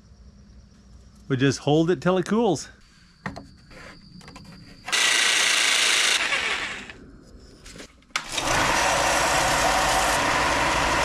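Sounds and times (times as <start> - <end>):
power tool winding down: 4.9 - 7.0, 8.2 - 11.0
belt sander sanding wood: 8.4 - 11.0.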